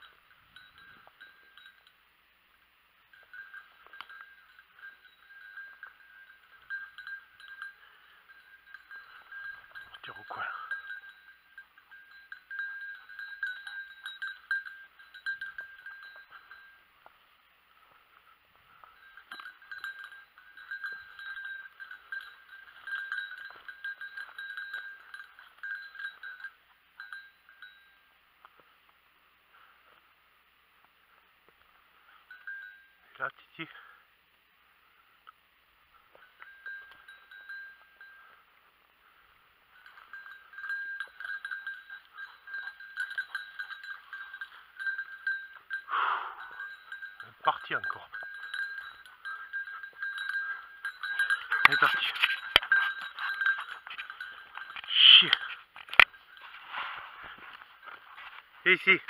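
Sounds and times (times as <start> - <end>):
small bell jingling: 0.0 - 17.2, 17.8 - 28.6, 31.1 - 34.1, 35.9 - 59.0
rustle of dry bracken: 51.5 - 59.0.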